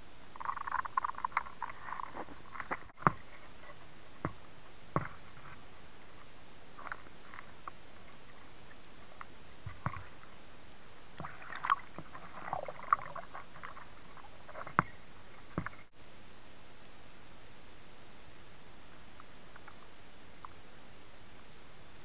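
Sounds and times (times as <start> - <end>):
clicks and crackles: 0.3 - 3.8, 18.9 - 20.6.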